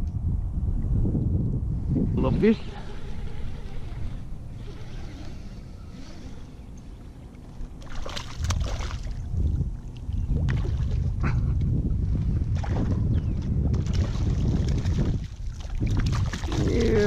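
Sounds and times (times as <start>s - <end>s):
wind rumble on microphone: 0.0s - 17.0s
water against a hull: 2.0s - 17.0s
fish splashing: 2.7s - 9.3s.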